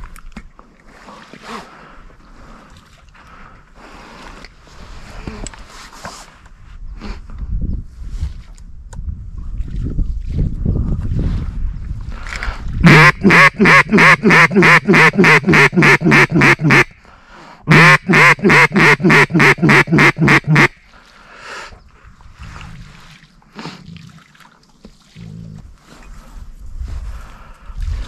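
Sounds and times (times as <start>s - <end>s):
duck call quacks: 12.8s - 17.0s, 17.7s - 20.8s.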